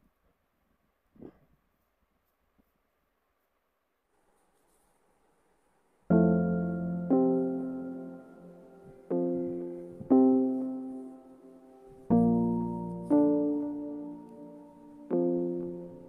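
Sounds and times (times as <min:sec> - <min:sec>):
slow piano chords: 0:06.1 - 0:16.0.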